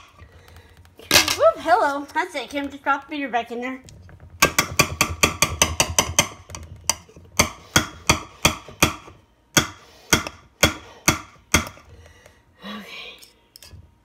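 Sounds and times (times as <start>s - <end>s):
mixer beaters knocking on pan: 4.0s - 11.8s.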